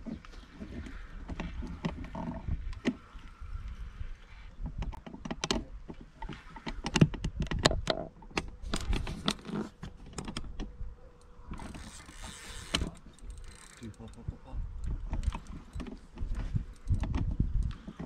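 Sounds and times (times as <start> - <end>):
fishing reel clicking: 11.5 - 14.4.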